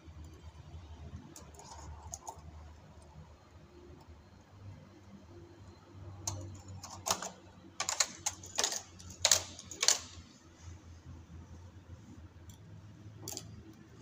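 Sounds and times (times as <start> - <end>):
knitting machine needles clicking: 6.2 - 10.2.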